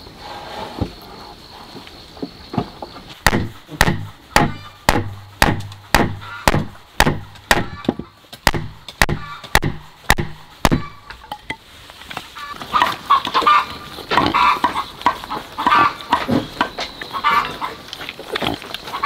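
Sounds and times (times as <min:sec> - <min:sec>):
chopping blows: 0:03.2 - 0:11.2.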